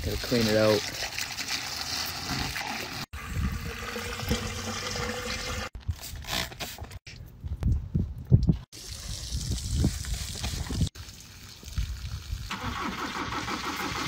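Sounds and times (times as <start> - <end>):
water from hose running: 0.0 - 5.8, 8.7 - 14.0.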